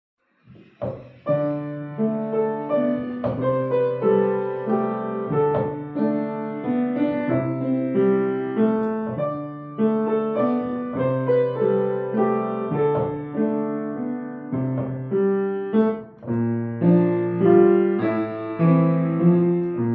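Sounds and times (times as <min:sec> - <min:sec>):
grand piano melody: 0:00.8 - 0:19.9.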